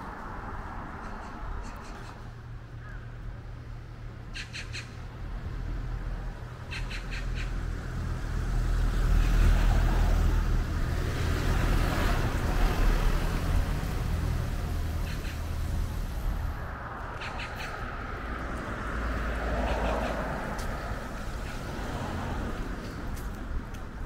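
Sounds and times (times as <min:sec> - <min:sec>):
broad rumbling noise: 0:09.4 - 0:23.6.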